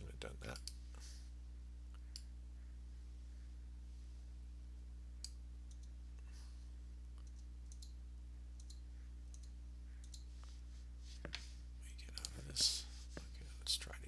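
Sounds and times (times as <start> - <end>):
low electrical hum: 0.0 - 14.0
computer mouse clicking: 5.2 - 5.9, 7.2 - 8.0, 8.6 - 10.3, 12.1 - 12.7.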